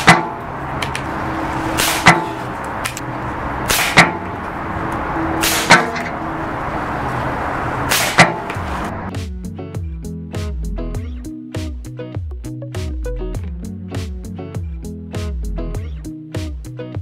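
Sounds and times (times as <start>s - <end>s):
air rifle shots cracking: 1.8s - 2.4s, 3.6s - 4.3s, 5.4s - 6.0s, 7.9s - 8.5s.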